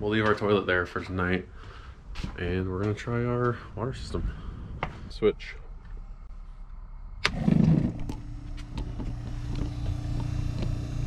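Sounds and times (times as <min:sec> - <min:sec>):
electric water pump humming: 0:07.2 - 0:11.0.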